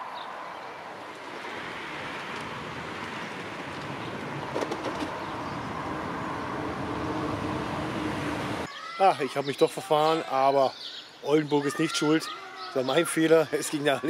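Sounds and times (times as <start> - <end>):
bicycle tyres rolling on pavement: 0.2 - 8.6.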